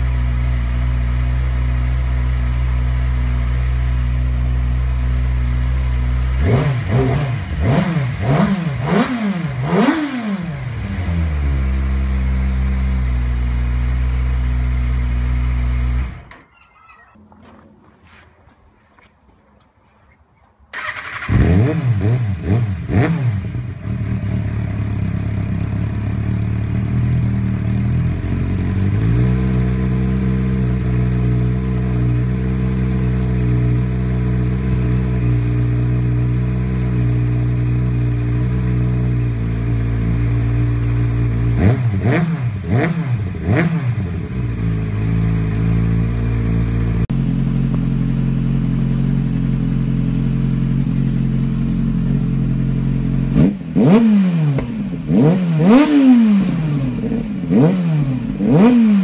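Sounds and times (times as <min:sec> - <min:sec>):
motorcycle engine revving: 0:00.0 - 0:18.2, 0:20.7 - 0:59.0
motorcycle engine idling: 0:23.4 - 0:57.5.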